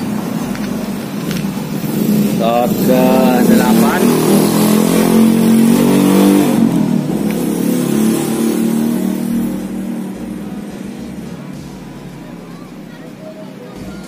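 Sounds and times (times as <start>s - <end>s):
vehicle engine passing: 0.0s - 13.9s.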